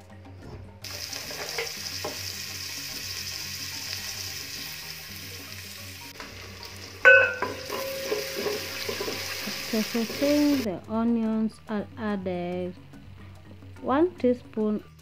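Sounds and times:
onions sizzling in hot oil: 0.8s - 10.7s
wooden spoon knocking pot: 7.1s - 9.2s
stirring in pot: 7.1s - 9.4s.

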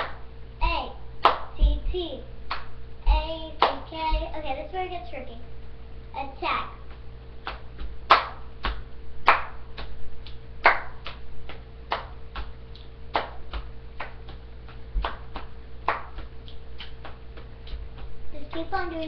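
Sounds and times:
child clapping and slapping: 1.2s - 1.9s, 2.5s - 4.3s, 6.9s - 19.0s
low thumps: 3.0s - 4.4s.

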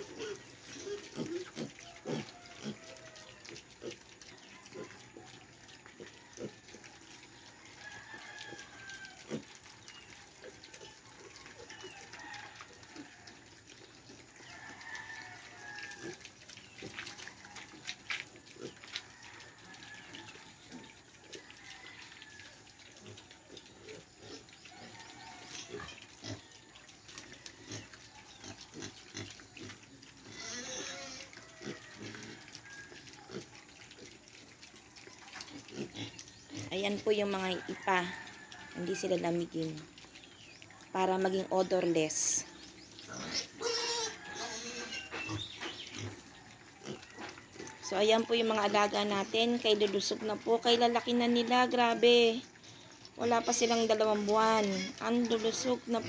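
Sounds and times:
piglets clicking and snuffling: 0.0s - 56.0s
piglet squeal: 30.3s - 32.0s, 43.2s - 45.4s.

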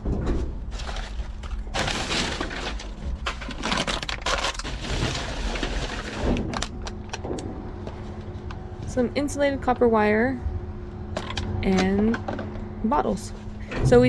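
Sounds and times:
paper and plastic trash rustling: 0.6s - 8.3s.

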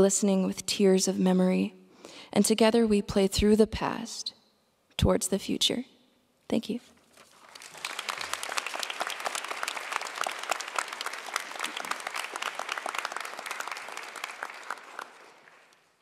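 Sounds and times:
audience applauding: 7.3s - 16.0s.

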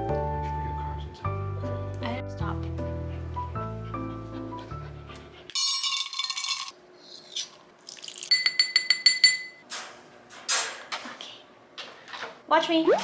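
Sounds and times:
music: 0.0s - 5.5s
spoon clinking on metal bowl: 8.3s - 9.6s.

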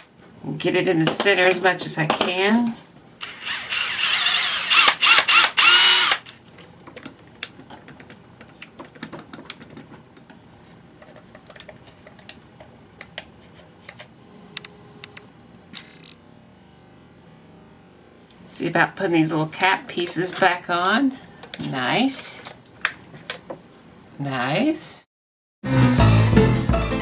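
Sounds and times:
electric drill whining: 3.2s - 6.3s.

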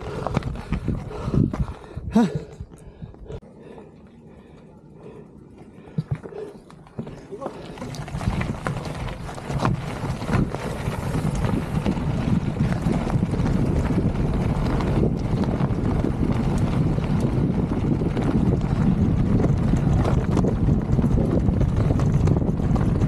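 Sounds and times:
bike clicks and rattles: 0.0s - 3.4s, 5.5s - 23.0s
wind buffeting microphone: 0.0s - 3.8s, 7.0s - 23.0s
bike tyres crunching on gravel: 6.2s - 23.0s.

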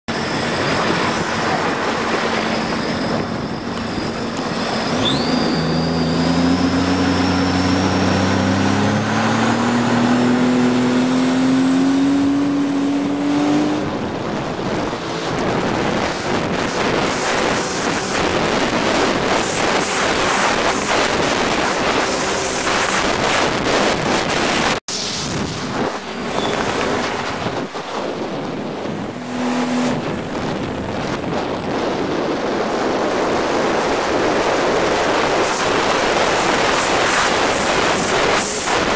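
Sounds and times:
watercraft engine and jet pump: 0.1s - 38.9s
wind buffeting microphone: 0.1s - 38.9s
water spray: 35.1s - 38.9s.

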